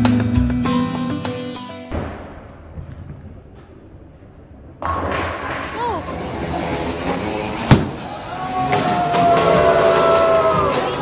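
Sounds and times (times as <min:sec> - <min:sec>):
crowd cheering: 0:07.9 - 0:11.0.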